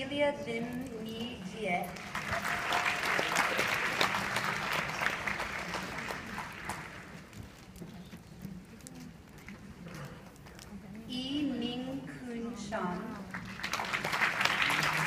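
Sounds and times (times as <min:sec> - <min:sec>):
audience clapping: 0:02.0 - 0:07.4, 0:13.3 - 0:15.0.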